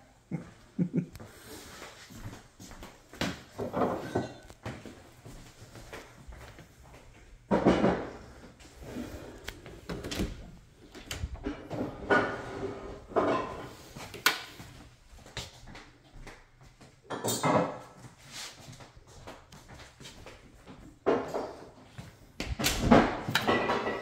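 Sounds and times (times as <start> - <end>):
household knocks and clicks: 7.5 - 8.2, 22.4 - 24.0.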